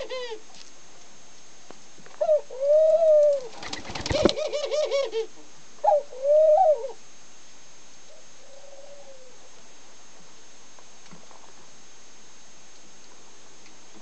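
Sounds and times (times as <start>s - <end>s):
dove laughing call: 0.0s - 0.4s, 2.2s - 7.0s
doves cooing: 0.0s - 0.5s, 2.2s - 7.0s, 8.1s - 9.6s.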